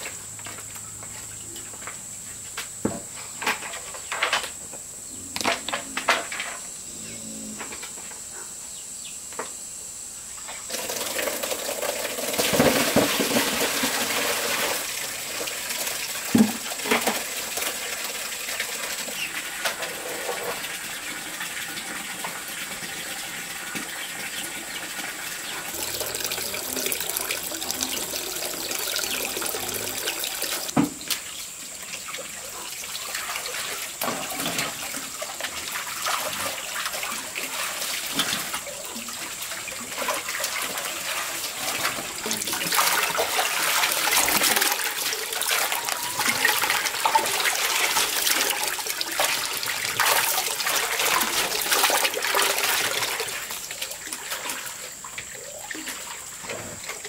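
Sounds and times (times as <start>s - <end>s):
running splashing water: 10.7s - 30.7s, 31.6s - 57.0s.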